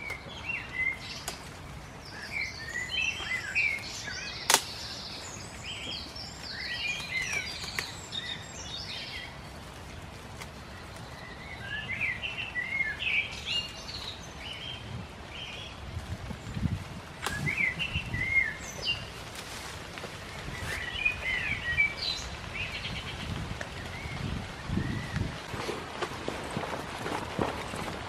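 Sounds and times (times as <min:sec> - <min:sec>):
songbirds chirping: 0:00.0 - 0:28.0.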